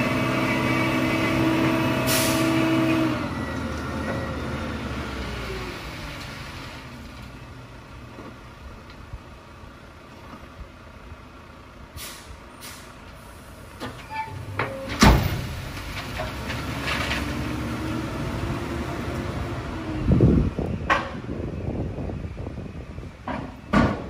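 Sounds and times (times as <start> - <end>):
diesel truck engine: 0.0 - 24.0
air brake hisses: 2.1 - 2.5, 12.0 - 13.6
gravel sliding out: 15.1 - 19.3.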